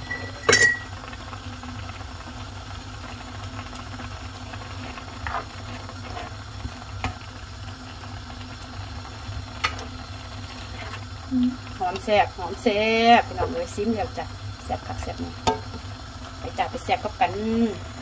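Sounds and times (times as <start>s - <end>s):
curry simmering in a pan: 0.1s - 18.0s
spatula scraping and tapping: 5.2s - 6.4s
spatula knocking on a pan: 15.5s - 15.8s.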